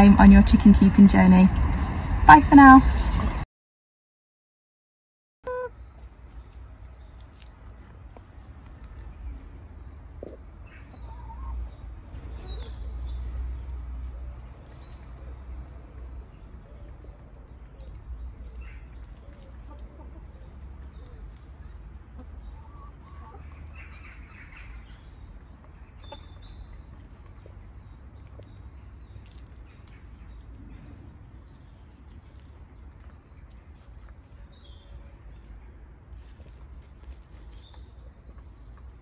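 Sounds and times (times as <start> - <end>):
low rumble: 0.0 - 3.4.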